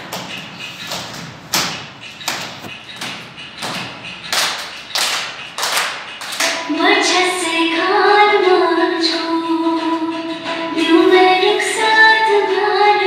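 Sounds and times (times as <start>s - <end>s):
percussive beats ringing: 0.0s - 7.1s.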